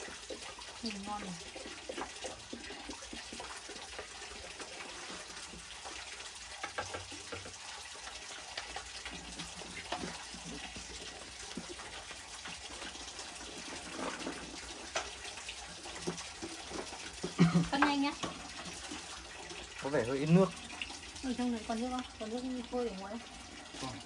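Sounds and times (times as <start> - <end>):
running water: 0.0 - 24.0.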